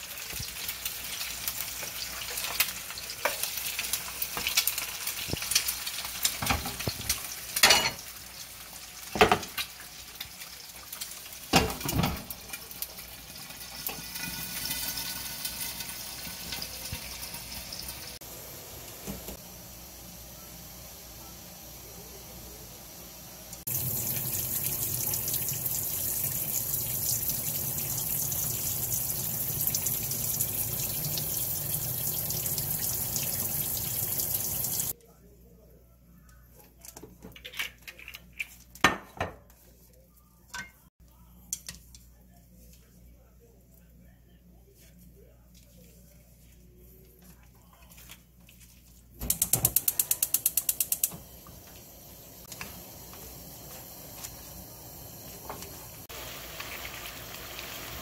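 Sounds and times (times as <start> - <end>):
water poured from a pan: 9.2 - 18.2, 23.6 - 34.9, 56.0 - 58.0
tap water running into metal sink: 23.7 - 34.9
spark igniter clicking rapidly: 49.3 - 51.1.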